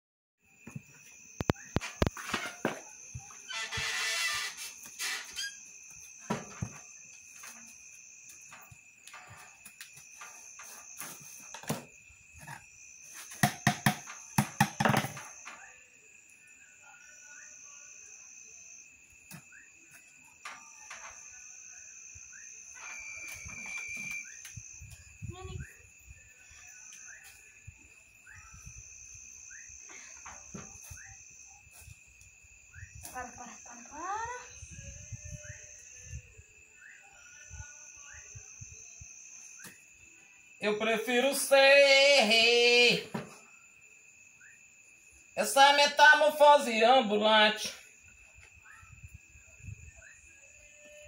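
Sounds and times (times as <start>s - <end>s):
crickets chirring: 0.4s - 51.0s
insects trilling: 0.4s - 51.0s
plastic pipe rustling and knocks: 6.2s - 7.6s
plastic pipe knocking on concrete: 13.4s - 15.2s.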